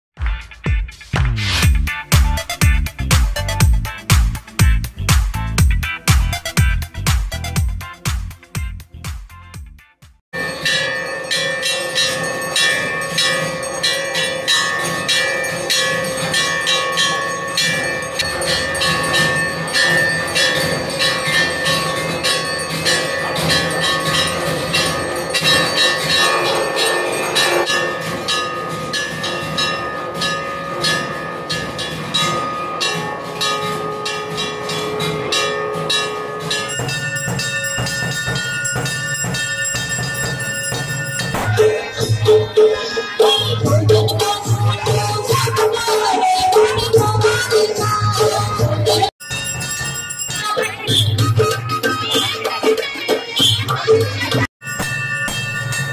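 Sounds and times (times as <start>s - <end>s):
temple bells clanging: 10.3s - 43.8s, 49.2s - 51.7s, 54.6s - 55.9s.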